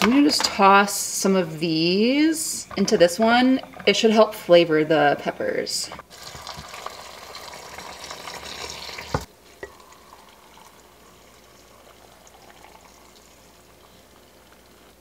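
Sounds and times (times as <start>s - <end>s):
liquid pouring and splashing: 6.0s - 14.8s.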